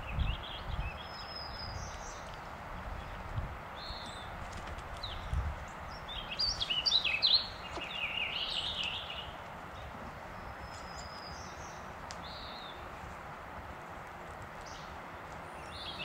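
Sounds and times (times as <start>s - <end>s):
songbird warbling: 5.9s - 12.8s.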